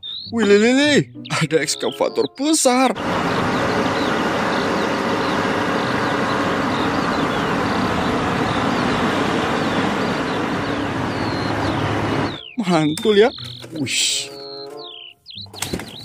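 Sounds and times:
small high chirps: 0:00.0 - 0:02.4, 0:10.2 - 0:16.0
excavator diesel engine drone: 0:03.0 - 0:13.0.

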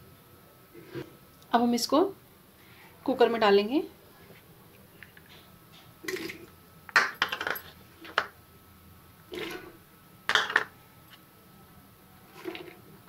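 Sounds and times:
bowls and spoon clinking on pot: 0:10.3 - 0:10.8.

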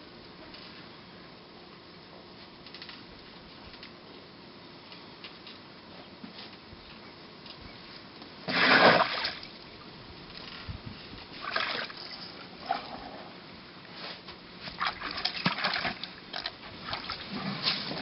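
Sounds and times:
elephant trunks splashing water: 0:08.5 - 0:09.5.

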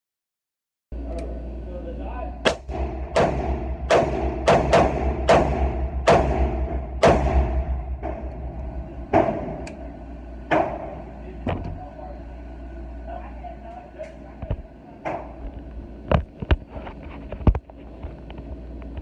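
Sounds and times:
rifle shots echoing indoors: 0:02.4 - 0:08.4.

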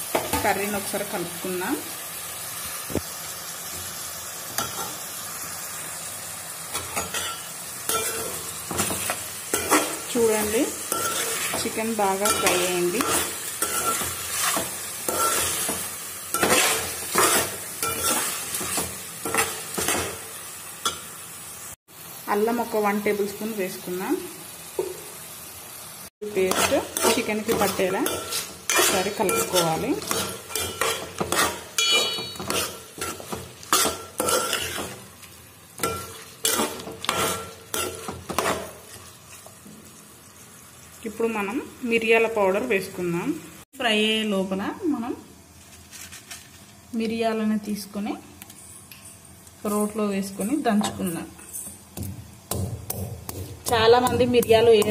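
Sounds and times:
chicken sizzling in oil: 0:00.0 - 0:43.7
metal spoon scraping a pot: 0:16.4 - 0:20.0, 0:26.4 - 0:35.0
short metallic ring: 0:31.8 - 0:32.4.

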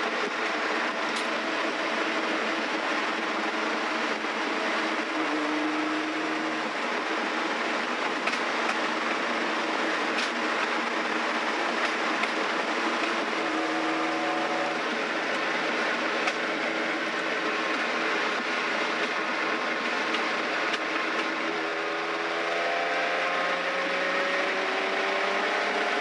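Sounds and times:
road and wind noise: 0:00.0 - 0:26.0
car engine cruising: 0:11.2 - 0:26.0.

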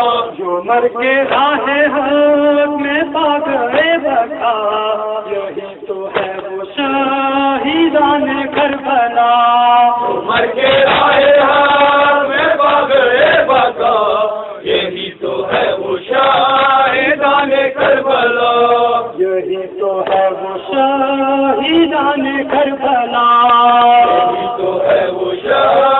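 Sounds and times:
crowd of men chanting a lament: 0:00.0 - 0:25.9
hands slapping on chests: 0:01.2 - 0:01.6, 0:06.1 - 0:06.5, 0:20.0 - 0:20.3.

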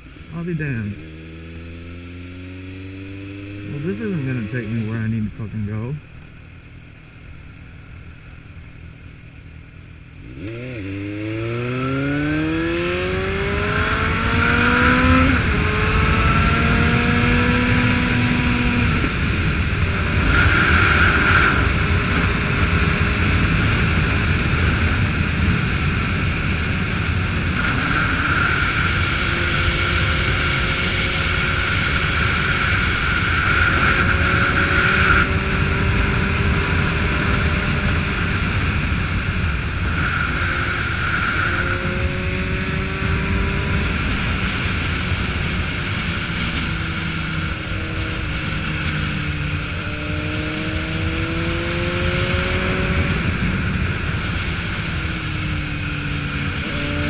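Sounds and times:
motorcycle engine accelerating: 0:00.0 - 0:57.0
wind rush on microphone: 0:12.4 - 0:57.0.

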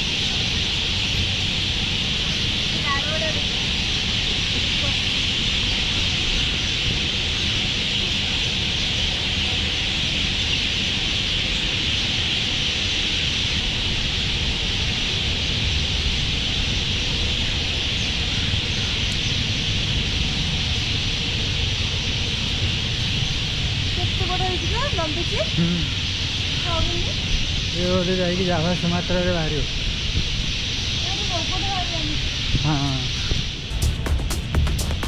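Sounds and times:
insects chirring: 0:00.0 - 0:35.0
low rumble: 0:33.5 - 0:35.0.

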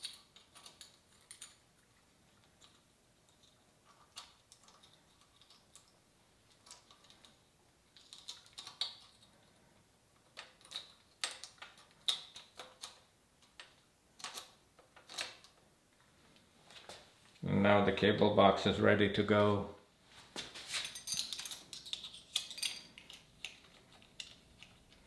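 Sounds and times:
small clicks and taps of bike parts: 0:10.2 - 0:15.6.

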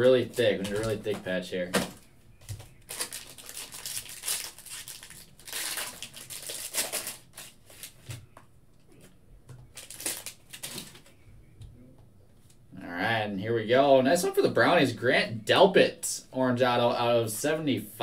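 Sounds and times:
foil wrapper tearing and crinkling: 0:02.8 - 0:08.0, 0:09.8 - 0:11.0.

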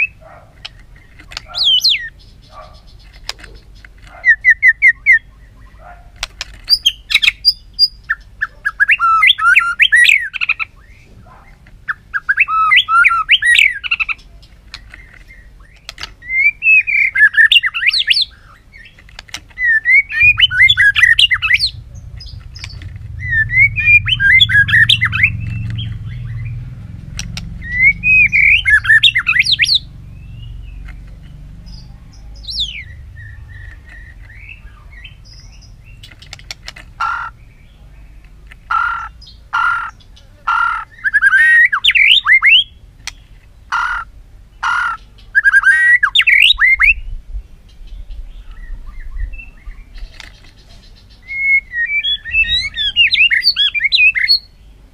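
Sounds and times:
bird singing whistled phrases: 0:06.7 - 0:11.1, 0:12.1 - 0:14.1, 0:15.6 - 0:18.5, 0:19.6 - 0:26.6, 0:27.6 - 0:30.6, 0:40.9 - 0:42.7, 0:45.3 - 0:47.1, 0:51.2 - 0:54.5.

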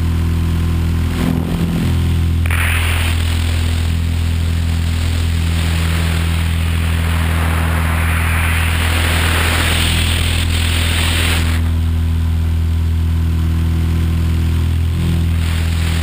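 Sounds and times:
helicopter rotor humming: 0:00.0 - 0:16.0
rushing air: 0:00.9 - 0:11.8.

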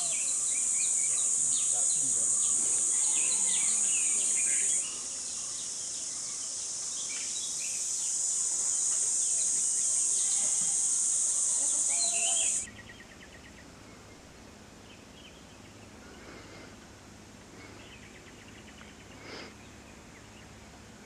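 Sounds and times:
bird chirps: 0:00.0 - 0:13.5
insects droning: 0:00.0 - 0:21.0.

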